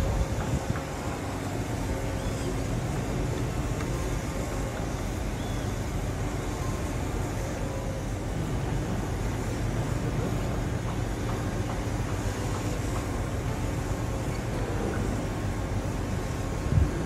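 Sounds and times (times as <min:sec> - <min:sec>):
wind noise: 0:00.0 - 0:01.2, 0:16.6 - 0:17.0.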